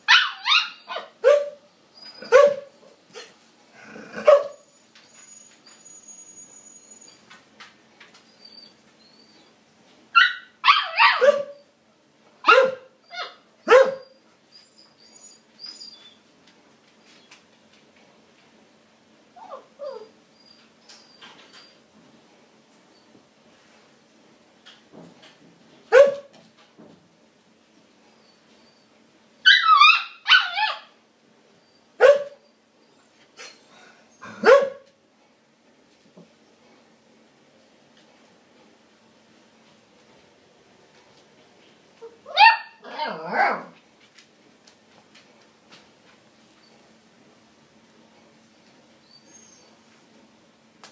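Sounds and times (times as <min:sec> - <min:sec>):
puppy barking: 0:00.1 - 0:01.6, 0:02.2 - 0:03.3, 0:04.2 - 0:04.6, 0:10.2 - 0:11.6, 0:12.4 - 0:14.2, 0:25.9 - 0:26.3, 0:29.5 - 0:30.9, 0:32.0 - 0:32.4, 0:34.2 - 0:34.9, 0:42.3 - 0:43.8
puppy yowling: 0:00.1 - 0:02.7, 0:10.2 - 0:11.6, 0:12.5 - 0:16.2, 0:19.4 - 0:21.2, 0:29.4 - 0:31.0, 0:42.0 - 0:43.8.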